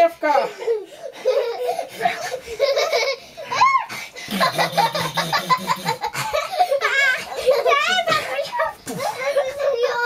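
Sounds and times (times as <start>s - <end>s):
children laughing and squealing: 0.3s - 10.0s
deeper voice laughing: 4.3s - 6.7s.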